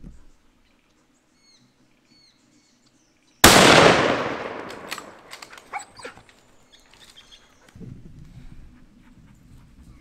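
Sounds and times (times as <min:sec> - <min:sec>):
rifle shot with echo: 0:03.4 - 0:05.5.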